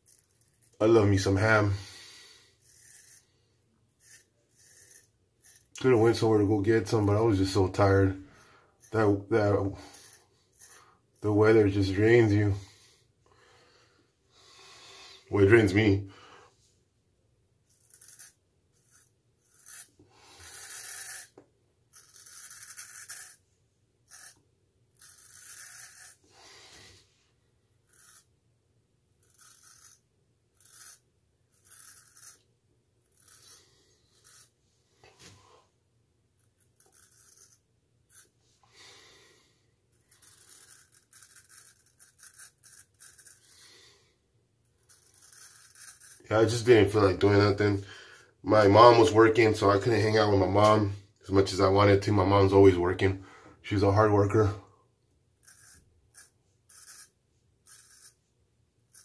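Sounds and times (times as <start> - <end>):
razor scraping stubble: 0.0 - 3.4, 4.0 - 8.0, 17.7 - 23.4, 24.1 - 24.4, 29.2 - 32.4, 33.0 - 35.3, 36.4 - 38.6, 39.9 - 43.6, 44.8 - 47.7, 55.4 - 58.2.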